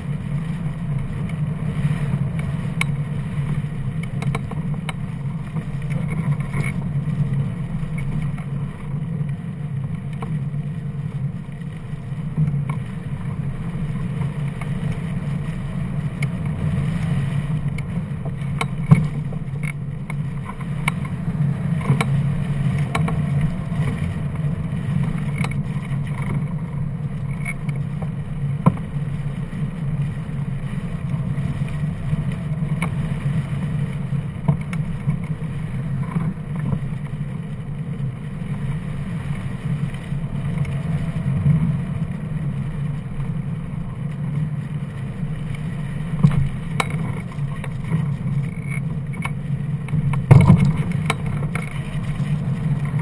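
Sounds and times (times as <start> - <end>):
faint tick: 0.9 - 6.9, 7.8 - 10.4, 12.4 - 13.0, 17.5 - 26.6, 30.0 - 37.4, 39.2 - 53.0.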